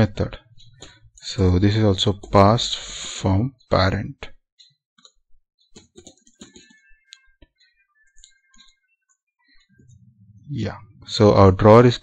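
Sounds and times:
keyboard typing: 5.0s - 10.0s.

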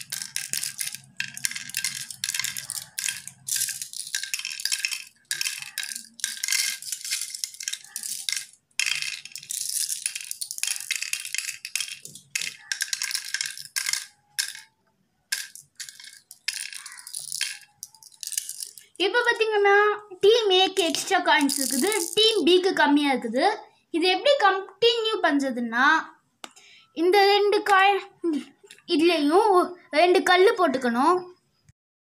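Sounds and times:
shells clattering into wooden board: 0.0s - 14.7s, 15.3s - 19.0s, 20.9s - 22.2s.

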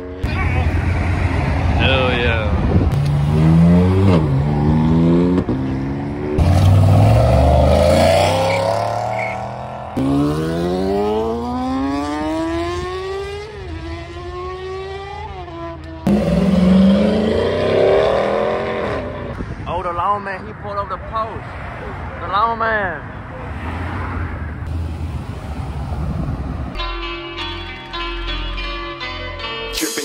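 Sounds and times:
car accelerating hard: 2.9s - 19.4s
motorcycle revving through gears: 2.9s - 19.4s
car engine starting: 16.0s - 19.4s.

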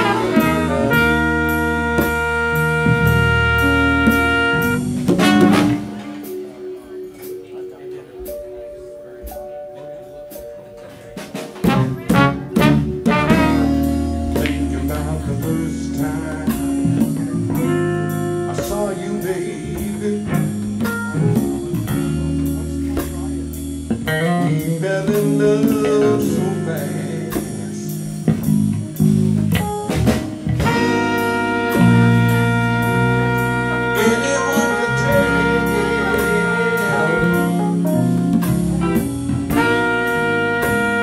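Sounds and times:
horns holding a chord: 0.0s - 7.4s, 11.6s - 23.6s, 30.6s - 41.0s
soul-jazz band playing: 0.0s - 41.0s.

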